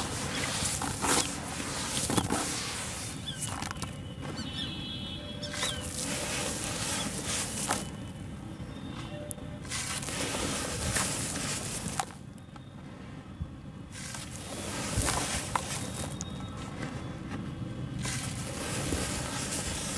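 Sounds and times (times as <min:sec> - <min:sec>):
wet cement crunching and squishing: 0:00.0 - 0:04.6, 0:14.0 - 0:16.4, 0:18.0 - 0:19.9.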